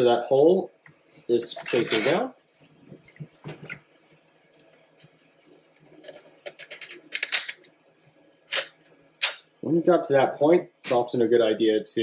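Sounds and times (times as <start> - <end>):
plastic parts clicking and rubbing: 5.9 - 7.7.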